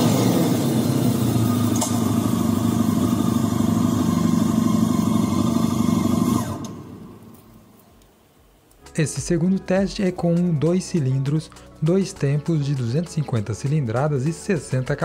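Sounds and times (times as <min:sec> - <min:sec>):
synthesized motorcycle engine sound: 0:00.0 - 0:07.3.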